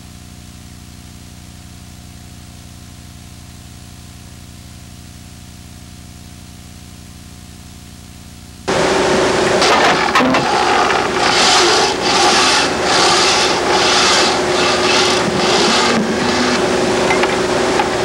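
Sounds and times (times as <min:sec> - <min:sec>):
constant low hum: 0:00.0 - 0:18.0
pulsing hiss: 0:10.4 - 0:16.8.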